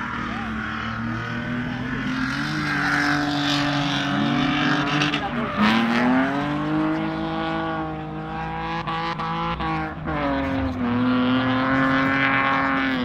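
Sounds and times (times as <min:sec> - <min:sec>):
car engine at high revs: 0:00.0 - 0:13.0.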